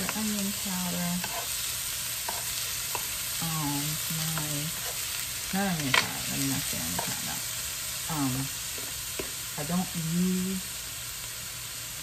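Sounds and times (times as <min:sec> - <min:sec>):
spatula scraping a pan: 0:00.0 - 0:07.6, 0:08.5 - 0:09.4
food sizzling in a frying pan: 0:00.0 - 0:12.0.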